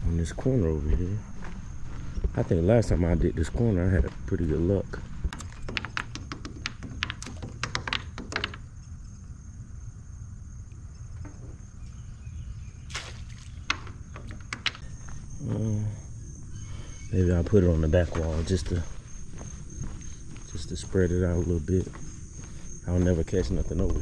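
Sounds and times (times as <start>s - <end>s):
insect buzz: 4.7s - 24.0s
crab net clicks and knocks: 5.3s - 8.6s, 13.6s - 14.8s.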